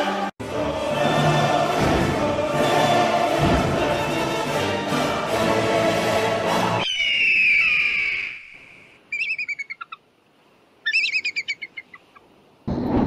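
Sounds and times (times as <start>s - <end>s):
orchestral music: 0.0s - 6.8s
bird calls: 6.8s - 10.0s, 10.8s - 12.3s.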